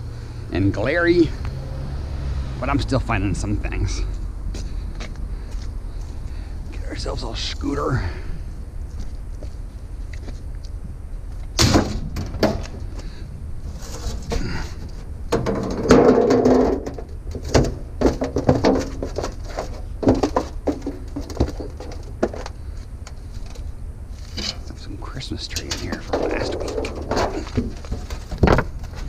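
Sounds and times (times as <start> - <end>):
steady low rumble: 0.0 - 15.9
scooter clanks and knocks: 11.6 - 13.0, 14.0 - 23.6, 25.5 - 29.0
scraping rattle: 13.7 - 24.9, 25.5 - 29.0.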